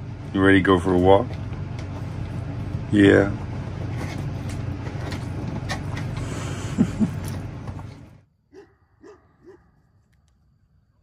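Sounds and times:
low indoor hum: 0:00.0 - 0:11.0
dog barking: 0:08.5 - 0:09.8.

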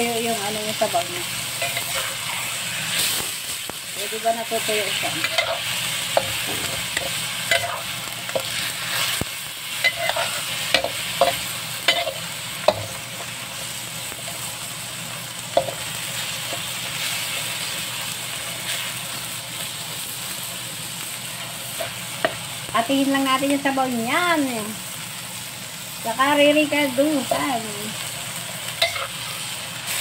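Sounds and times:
meat sizzling in a wok: 0:00.0 - 0:30.0
metal spatula scraping wok: 0:01.5 - 0:03.3, 0:04.5 - 0:13.0, 0:28.7 - 0:30.0.

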